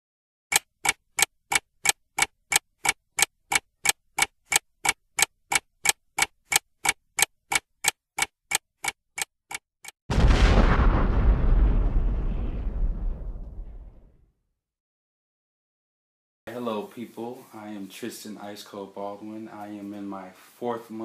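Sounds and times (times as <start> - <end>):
ticking sound effect: 0.5 - 10.0
explosion with deep rumble: 10.1 - 14.3.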